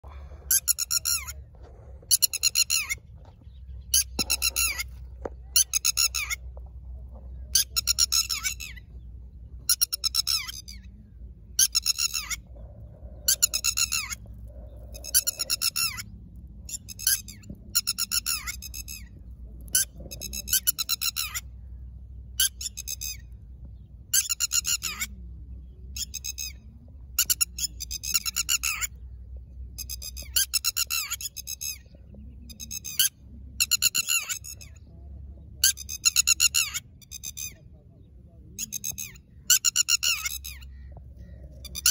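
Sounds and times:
lapwing alarm calls: 2.1 - 6.5, 7.3 - 23.5, 24.1 - 41.9.

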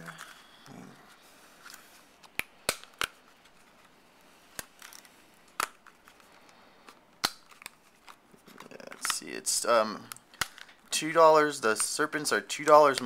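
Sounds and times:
plastic clicks and snaps: 10.0 - 10.8.

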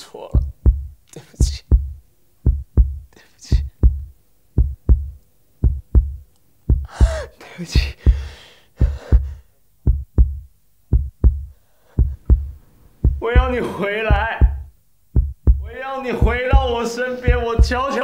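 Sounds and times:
heartbeat thumps: 0.4 - 17.9
woman sobbing: 6.9 - 8.2.

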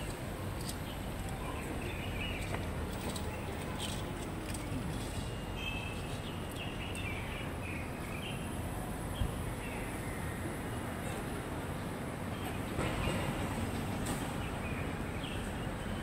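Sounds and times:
street noise: 0.0 - 16.0
small birds chirping: 5.2 - 8.5.

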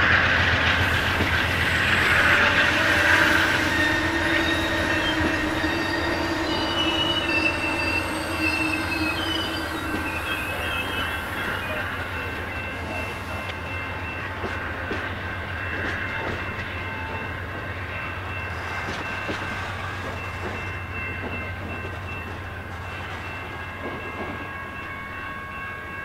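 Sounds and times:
train cars rumbling on rails: 0.0 - 26.0
high-pitched wheel squeal: 1.0 - 11.6.

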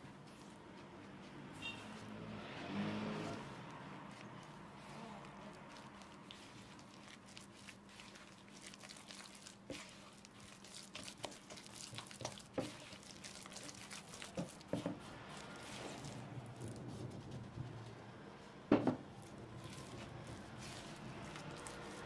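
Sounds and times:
spatula scraping dough in bowl: 3.1 - 17.6.

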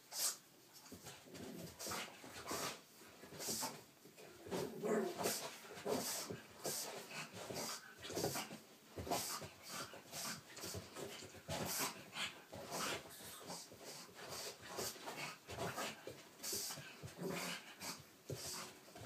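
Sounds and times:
dog huffing breaths: 5.2 - 19.0.

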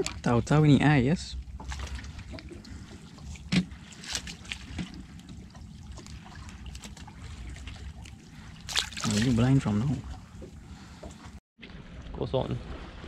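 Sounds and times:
water lapping against boat hull: 0.0 - 13.0.

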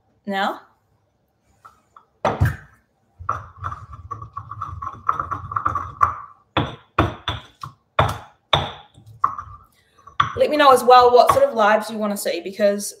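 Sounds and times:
pestle pounding strikes: 3.2 - 9.6
mortar and pestle grinding: 3.2 - 10.4.

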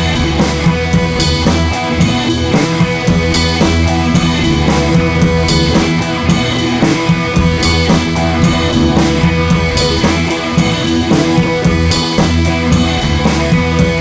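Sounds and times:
rock music with drums: 0.0 - 14.0.

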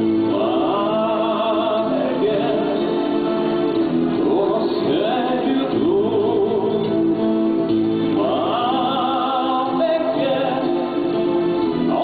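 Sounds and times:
instrumental backing: 0.0 - 12.0
man singing: 0.0 - 12.0.

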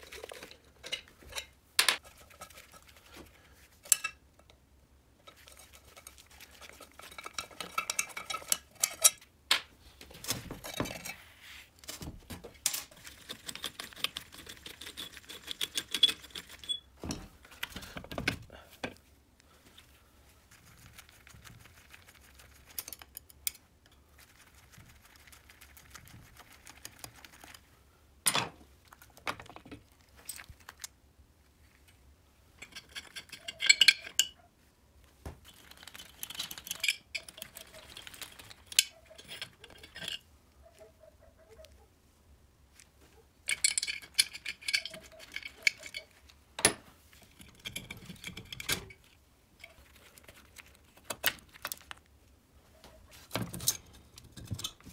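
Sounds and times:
metal parts clicking and knocking: 32.6 - 34.4, 35.4 - 40.2, 43.4 - 49.8.

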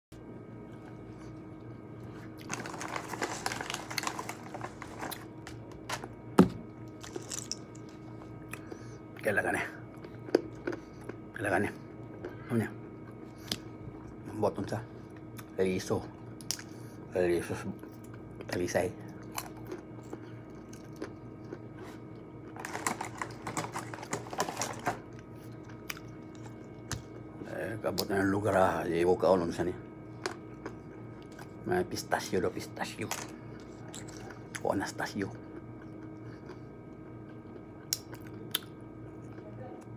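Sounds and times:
low steady hum: 0.1 - 39.9
crinkling and crunching: 2.0 - 8.1, 19.2 - 27.2
nut shells cracking: 6.9 - 7.9.

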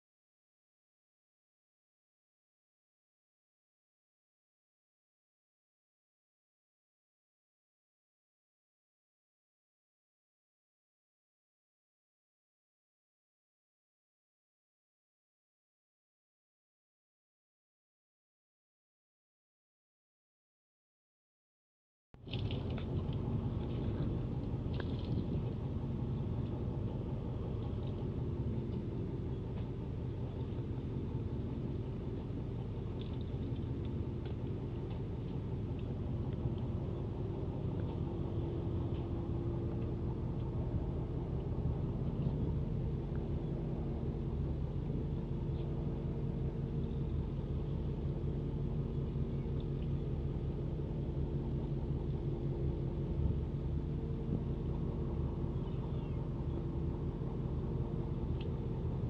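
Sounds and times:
boat engine idling: 22.2 - 59.0.

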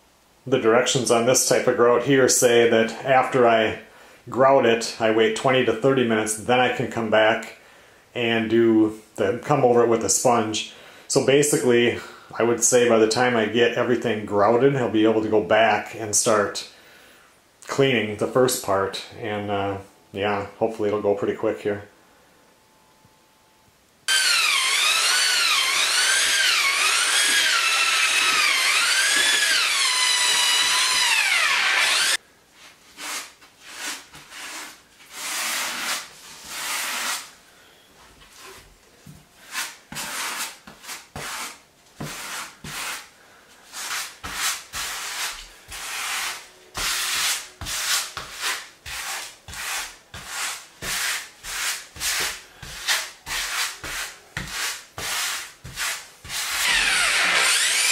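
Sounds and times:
drill mixer churning grout: 24.1 - 32.2, 51.5 - 57.9
grout float scraping tile: 32.8 - 37.3, 39.4 - 57.9.

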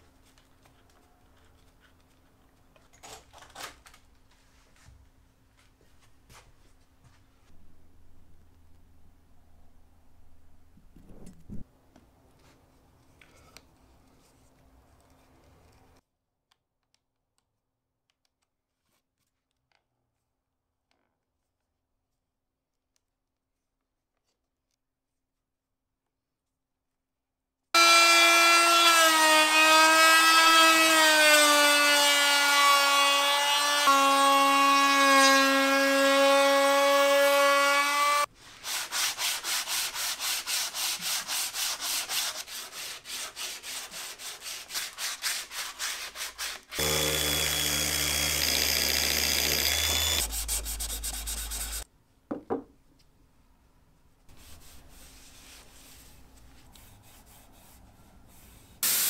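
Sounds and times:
rubbing strokes on wood: 38.4 - 46.8, 50.0 - 51.8
router whining: 46.7 - 51.8.

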